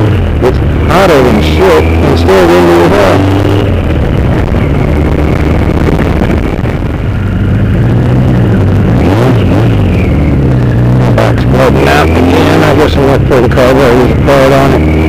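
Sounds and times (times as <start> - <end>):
motorcycle engine running: 0.0 - 15.0
wind over microphone: 3.6 - 11.2.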